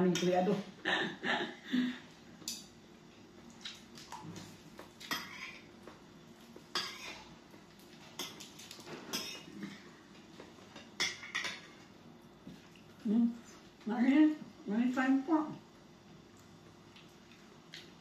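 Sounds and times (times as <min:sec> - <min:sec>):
cutlery clinking on plates: 0:10.7 - 0:11.8.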